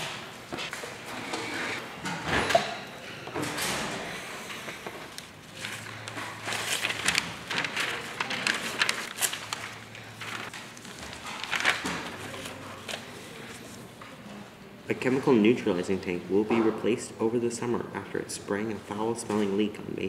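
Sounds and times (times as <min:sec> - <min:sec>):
newspaper pages rustling: 0:05.1 - 0:13.8.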